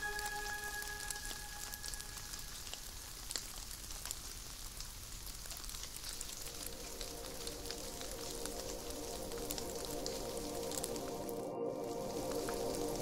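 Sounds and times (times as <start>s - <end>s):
held music chord: 0.0s - 2.6s, 6.7s - 13.0s
light rain on windscreen: 0.0s - 13.0s.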